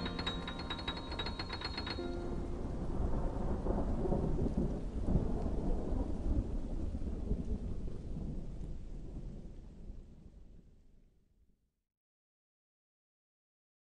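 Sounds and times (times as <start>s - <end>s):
low crackling rumble: 0.0s - 11.0s.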